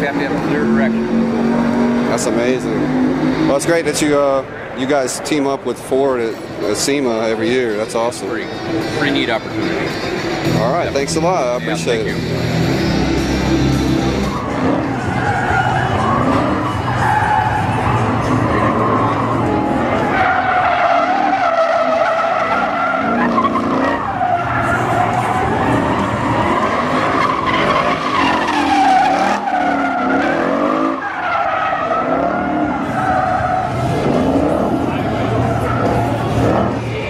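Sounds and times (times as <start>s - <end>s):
car tyres squealing: 0.0s - 37.0s.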